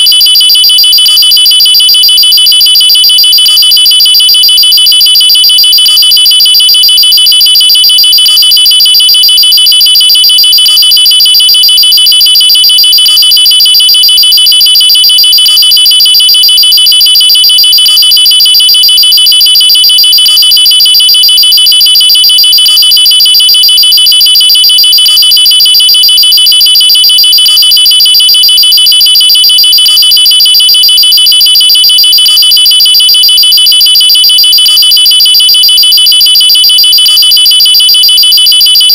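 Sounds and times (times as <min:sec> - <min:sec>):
high-pitched pulsing alarm: 0:00.0 - 0:38.9.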